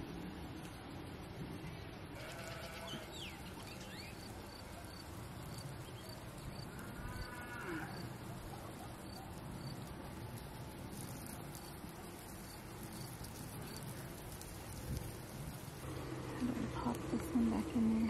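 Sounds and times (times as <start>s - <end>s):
faint steady hum: 0.0s - 18.0s
farm animal calling: 2.2s - 3.4s.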